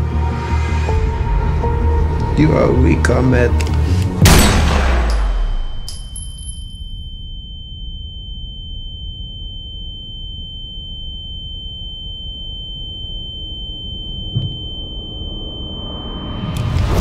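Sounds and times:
high-pitched ringing tone: 0:05.7 - 0:17.0.

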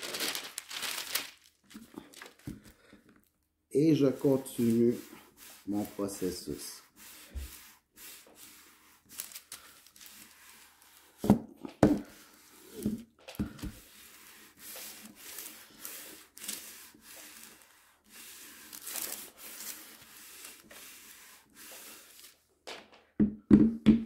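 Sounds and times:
iron rubbing on parchment paper: 0:03.8 - 0:11.2, 0:12.0 - 0:22.4.

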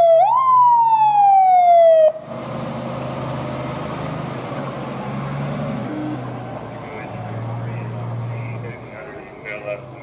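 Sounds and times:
fire engine siren wailing: 0:00.0 - 0:02.4, 0:04.5 - 0:09.8
truck engine running: 0:02.2 - 0:10.0.

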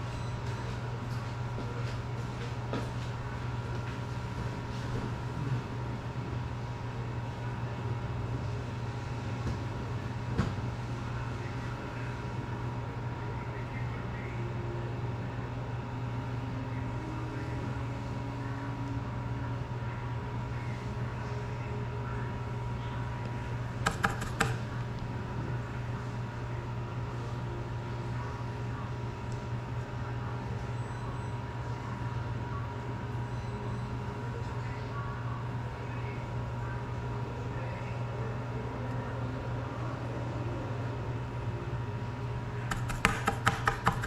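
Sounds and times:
low room hum: 0:00.0 - 0:44.0.

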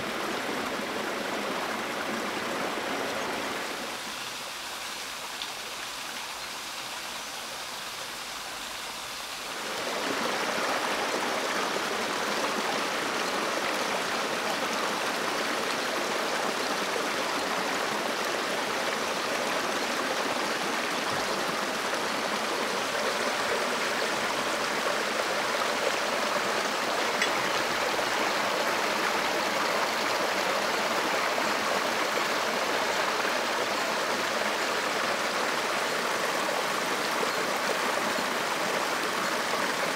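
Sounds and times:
stream water rushing: 0:00.0 - 0:39.9.

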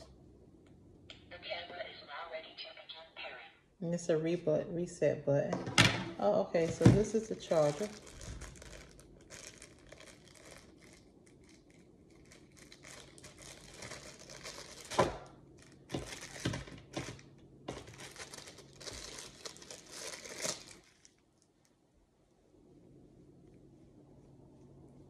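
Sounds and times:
plastic bag crinkling: 0:06.2 - 0:21.6.

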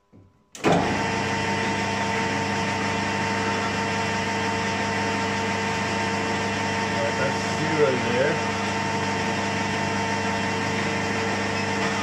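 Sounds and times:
metal lathe motor humming: 0:00.9 - 0:12.0.

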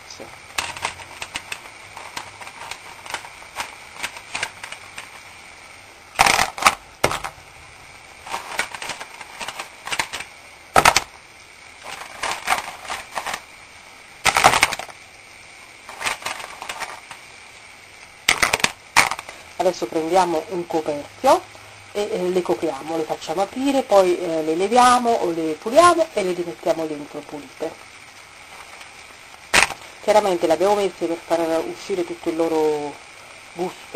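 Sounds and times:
mussel shells clattering in a pan: 0:00.4 - 0:05.4, 0:08.2 - 0:11.1, 0:11.8 - 0:13.6, 0:14.3 - 0:15.0, 0:15.8 - 0:17.3, 0:18.3 - 0:19.5.

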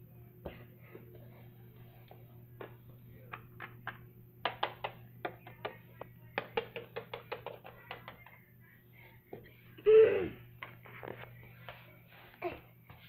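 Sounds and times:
faint steady hum: 0:00.0 - 0:13.0
plastic toys tapping on wooden floor: 0:03.3 - 0:08.4.

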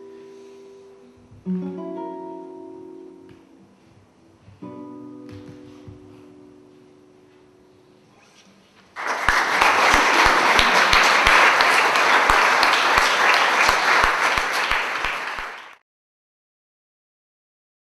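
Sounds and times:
audience applauding: 0:09.0 - 0:15.8
close clapper steady beat: 0:09.0 - 0:15.8.

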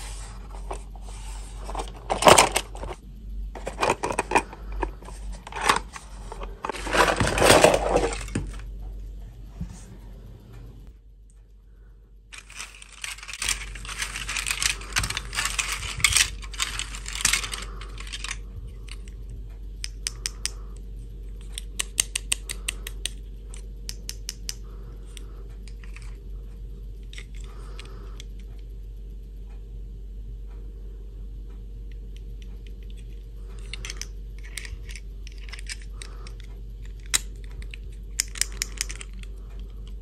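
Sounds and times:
plastic pieces clattering: 0:00.5 - 0:03.0, 0:03.6 - 0:08.6, 0:12.3 - 0:19.1, 0:33.6 - 0:39.3.

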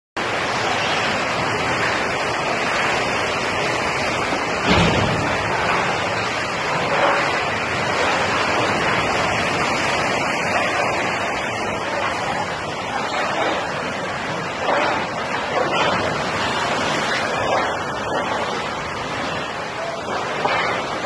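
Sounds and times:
rushing water underwater: 0:00.2 - 0:21.0.

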